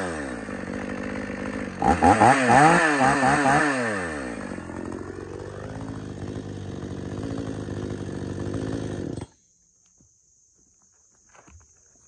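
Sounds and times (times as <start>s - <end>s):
chainsaw running: 0.0s - 9.4s
faint ticks and rustles: 9.6s - 12.0s.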